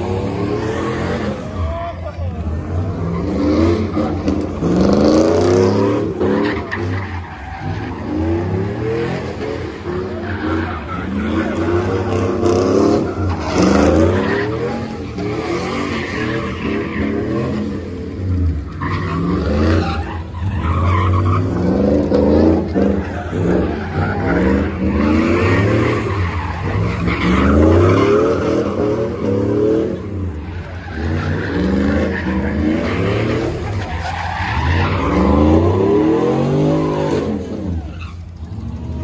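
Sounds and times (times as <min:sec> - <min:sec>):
car engines revving hard: 0:00.0 - 0:39.0
tires skidding: 0:00.0 - 0:39.0.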